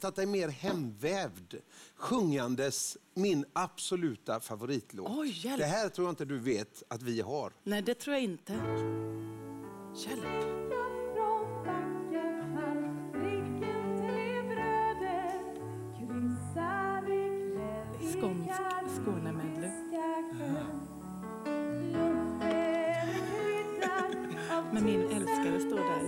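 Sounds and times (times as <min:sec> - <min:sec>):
guitar: 0:08.6 - 0:26.0
woman singing with vibrato: 0:10.0 - 0:20.9, 0:21.7 - 0:26.0.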